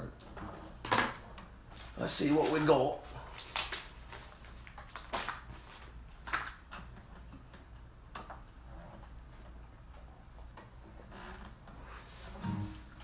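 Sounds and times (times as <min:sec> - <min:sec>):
low hum: 0:12.4 - 0:13.0.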